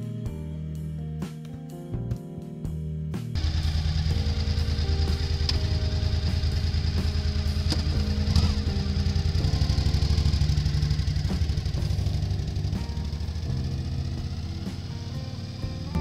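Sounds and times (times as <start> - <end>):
background music: 0.0 - 16.0
motorcycle engine pulling away: 3.4 - 16.0.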